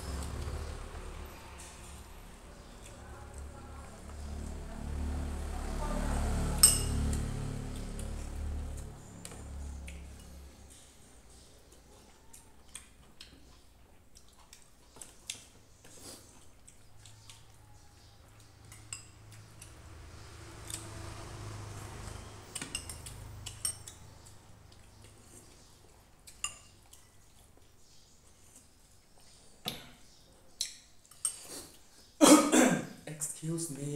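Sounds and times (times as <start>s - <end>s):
cutlery clinking on plates: 6.6s - 7.2s, 22.5s - 24.0s, 26.3s - 27.0s, 30.6s - 31.6s.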